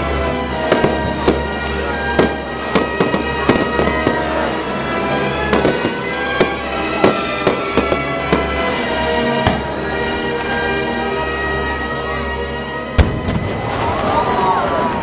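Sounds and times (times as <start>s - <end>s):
fireworks bangs and crackles: 0.0s - 10.0s, 13.0s - 14.3s
background music: 0.0s - 15.0s.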